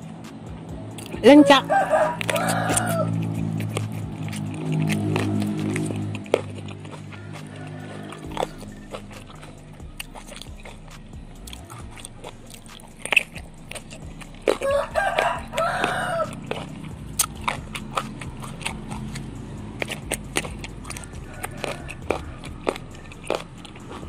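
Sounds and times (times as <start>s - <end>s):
biting and chewing berries: 0.0s - 24.0s
rooster crowing: 1.2s - 3.4s, 6.8s - 9.6s, 14.5s - 16.7s, 20.8s - 23.9s.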